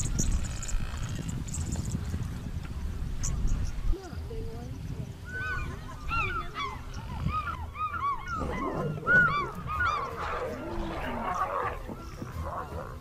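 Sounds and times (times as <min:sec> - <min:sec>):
rough low animal noise: 0:00.0 - 0:13.0
animal chirping calls: 0:05.3 - 0:13.0.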